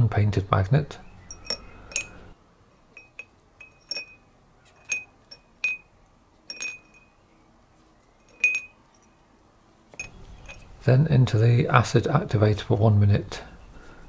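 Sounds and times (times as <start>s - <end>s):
metal parts clinking on glass jar: 1.2s - 2.3s, 2.9s - 7.2s, 8.2s - 9.2s, 9.9s - 10.8s.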